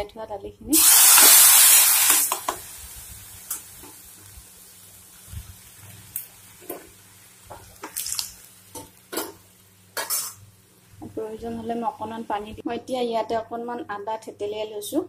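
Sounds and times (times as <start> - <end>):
food sizzling in hot oil: 0.7 - 12.6.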